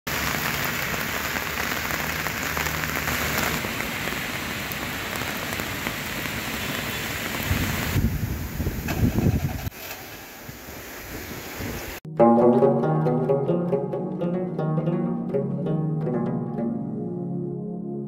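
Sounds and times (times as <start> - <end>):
heavy rain: 0.1 - 9.3
wind buffeting the microphone: 7.4 - 9.7, 10.4 - 12.0.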